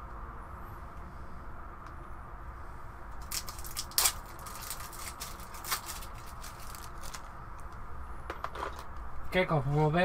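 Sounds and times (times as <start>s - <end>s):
plastic wrapping crinkling: 3.2s - 7.4s.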